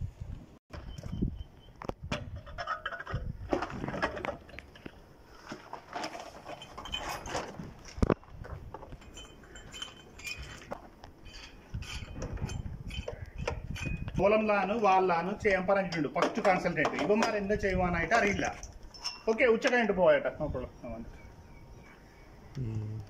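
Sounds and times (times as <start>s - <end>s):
metal clinks knocks and rattles: 2.3s - 4.7s, 5.9s - 14.2s, 15.8s - 19.4s.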